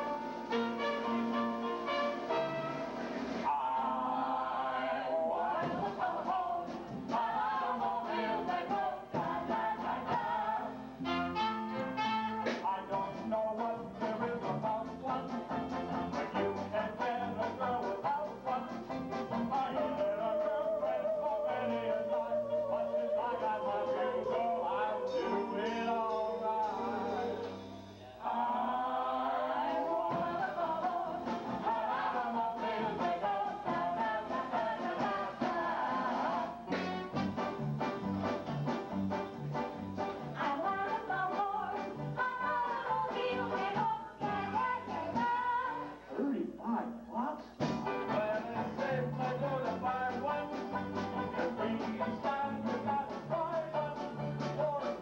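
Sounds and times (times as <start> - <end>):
voices singing: 3.4 - 36.9, 40.4 - 46.1, 47.8 - 55.0
banjo band playing: 11.0 - 20.8, 36.5 - 45.4, 47.6 - 55.0.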